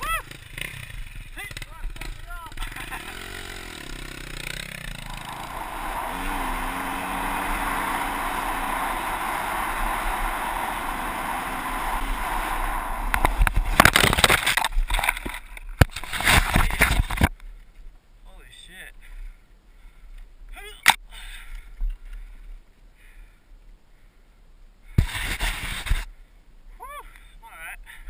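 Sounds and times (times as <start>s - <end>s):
dirt bike engine revving: 0.0s - 14.3s
motorcycle crashing into tree: 13.0s - 17.2s.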